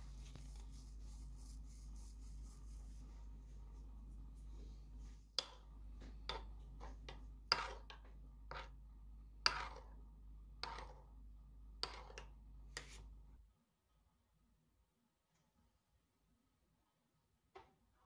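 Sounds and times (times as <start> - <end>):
ceramic spoon scraping a pot: 6.3 - 8.8, 9.4 - 9.9, 10.6 - 11.0, 11.8 - 13.0.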